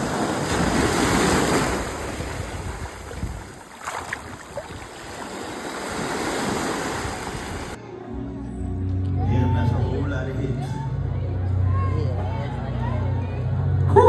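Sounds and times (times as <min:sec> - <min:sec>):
ocean surf on beach: 0:00.0 - 0:07.8.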